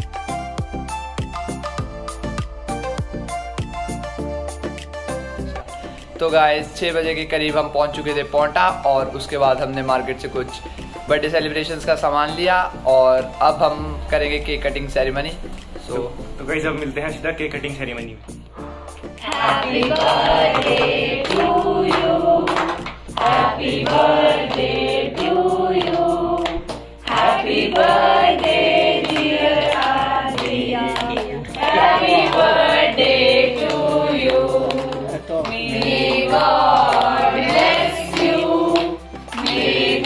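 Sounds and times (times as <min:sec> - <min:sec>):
people singing in chorus: 0:19.2 - 0:40.0.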